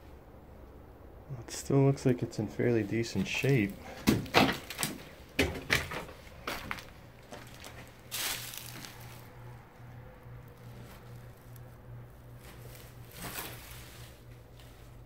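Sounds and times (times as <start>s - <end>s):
faint low hum: 0.0s - 15.0s
scraping rustle: 3.0s - 15.0s.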